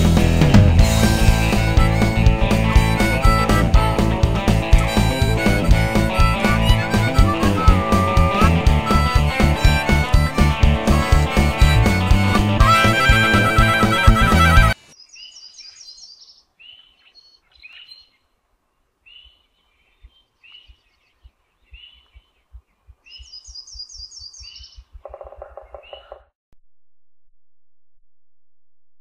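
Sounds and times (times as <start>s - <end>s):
songbirds chirping: 13.3s - 26.3s
low rapid rattling bird call: 19.9s - 26.3s.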